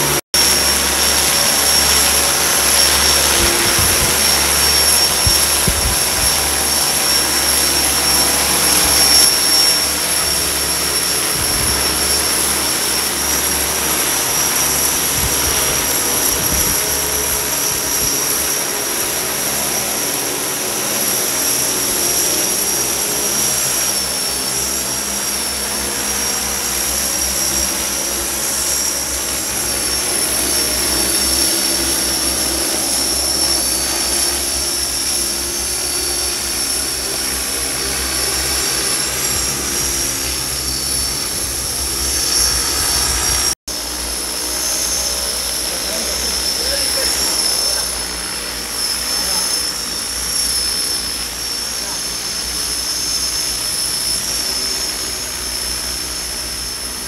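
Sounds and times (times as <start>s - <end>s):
drone propellers buzzing: 0.0s - 57.0s
high-pitched whine: 0.0s - 57.0s
wind buffeting microphone: 1.8s - 9.2s, 10.7s - 18.7s, 39.1s - 43.6s.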